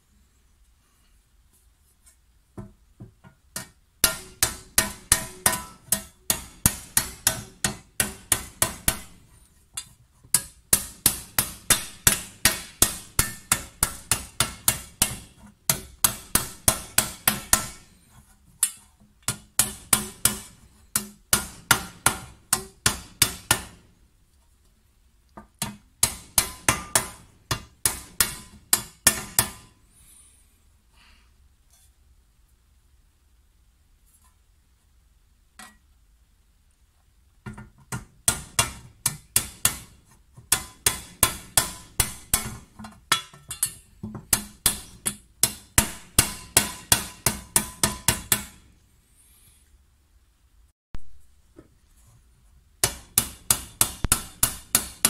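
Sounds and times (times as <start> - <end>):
hammer beating copper tray: 3.6 - 9.3, 10.4 - 17.9, 19.3 - 23.9, 25.6 - 29.8, 37.9 - 48.6, 52.8 - 55.0.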